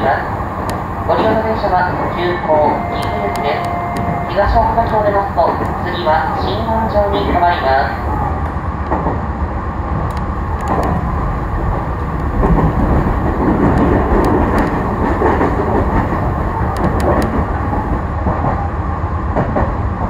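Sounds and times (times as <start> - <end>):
train rumble and hum: 0.0 - 20.0
sharp clicks: 10.1 - 11.0.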